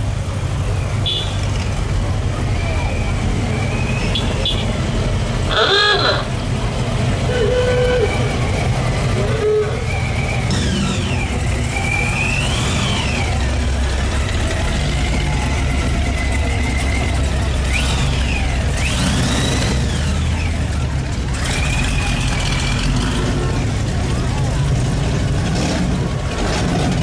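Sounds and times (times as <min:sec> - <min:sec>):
car engines rumbling: 0:00.0 - 0:27.0
high whistles: 0:09.4 - 0:13.4.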